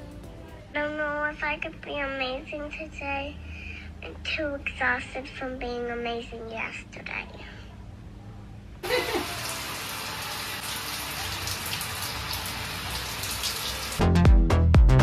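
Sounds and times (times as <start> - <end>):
shower water splashing: 8.8 - 14.0
loud music: 14.0 - 15.0.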